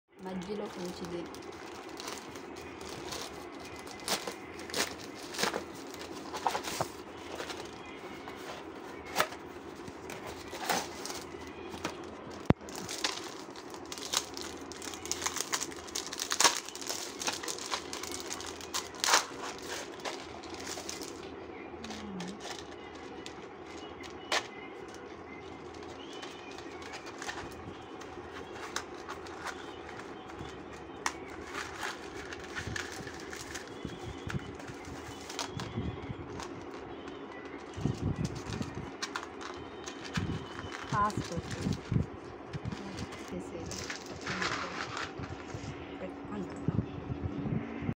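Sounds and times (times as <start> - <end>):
plastic mailer crinkling: 0.2 - 45.8
package being torn open: 10.3 - 21.3.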